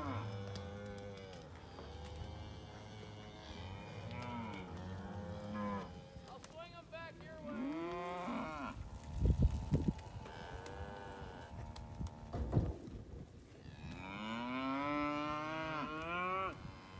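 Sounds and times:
cattle mooing and bawling: 0.0s - 6.3s, 7.4s - 9.1s, 10.0s - 12.3s, 13.6s - 16.9s.

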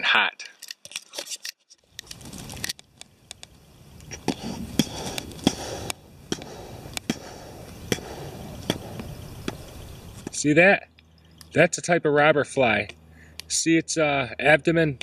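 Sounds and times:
outdoor background hiss: 0.0s - 15.0s
sharp ticks: 2.8s - 11.6s.

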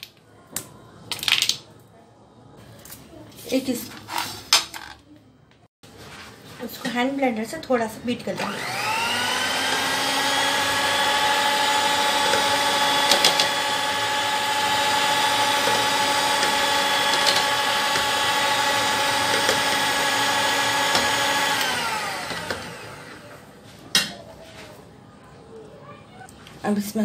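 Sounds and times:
electric hand mixer whining: 8.4s - 23.4s.

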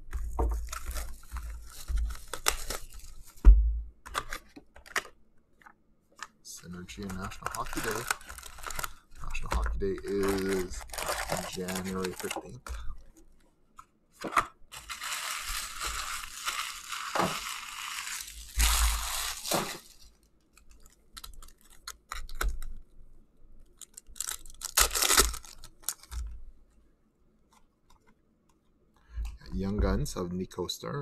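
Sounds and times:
foil wrappers tearing and crinkling: 0.1s - 3.4s, 6.6s - 12.6s, 14.7s - 22.7s, 23.8s - 26.3s.

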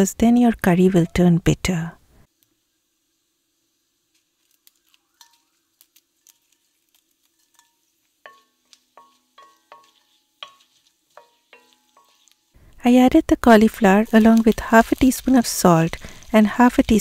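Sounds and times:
seeds crackling in hot oil: 2.2s - 17.0s
wooden spoon knocking on pot: 8.3s - 12.4s.

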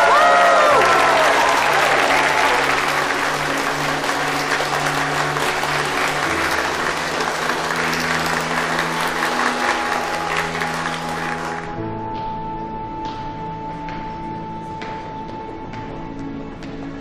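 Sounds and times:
audience applauding: 0.0s - 11.8s
background music with low notes: 0.0s - 17.0s.

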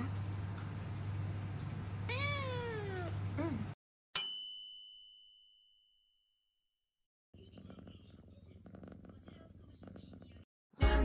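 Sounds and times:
cat meowing: 2.1s - 3.6s.

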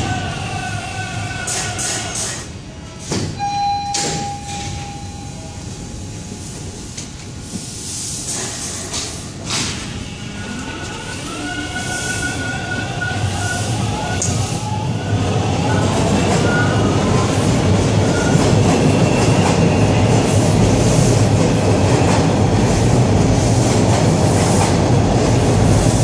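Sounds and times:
train rumble: 0.0s - 26.0s
train clunks: 1.4s - 11.1s, 15.7s - 26.0s
short tone: 3.4s - 6.4s
air hiss bursts: 7.4s - 10.0s.

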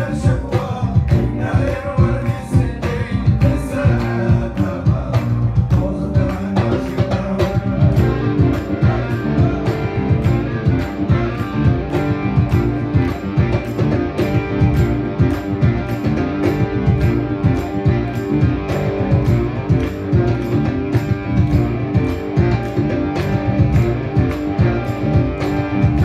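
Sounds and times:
person singing: 0.0s - 14.6s
electric guitar riffs: 0.0s - 26.0s
live band playing: 0.0s - 26.0s
steady drumbeat: 0.0s - 26.0s.

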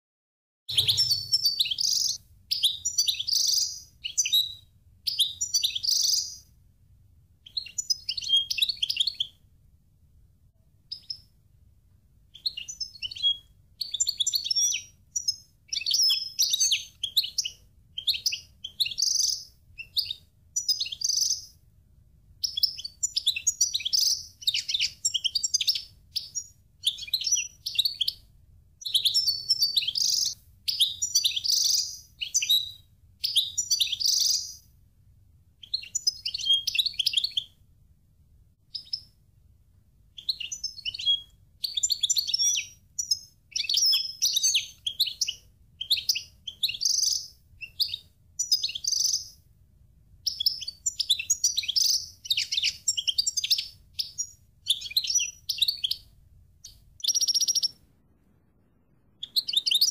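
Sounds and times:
finch twittering and warbling: 0.7s - 4.5s, 28.8s - 30.4s, 57.0s - 57.7s.

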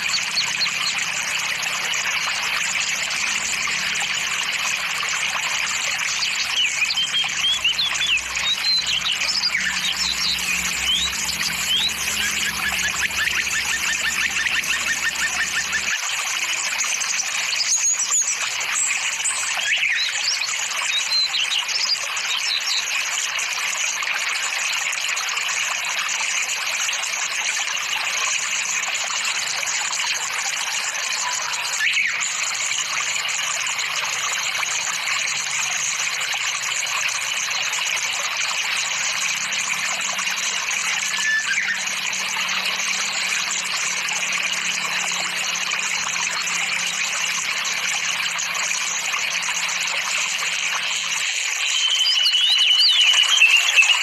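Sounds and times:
flowing water rushing: 0.0s - 54.0s
high bird chirps: 5.6s - 22.9s, 31.1s - 32.8s, 40.8s - 43.3s, 51.0s - 54.0s.

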